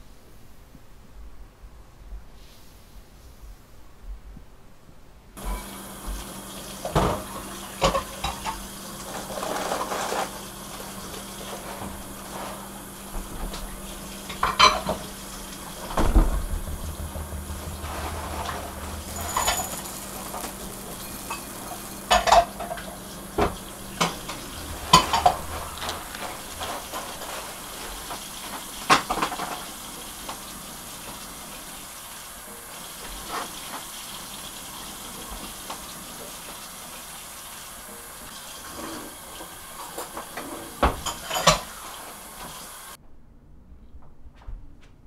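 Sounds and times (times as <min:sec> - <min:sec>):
steady background hiss: 0:00.0 - 0:43.0
dishes and cutlery clinking: 0:06.8 - 0:10.4, 0:14.2 - 0:15.2, 0:17.0 - 0:28.2, 0:40.0 - 0:41.8.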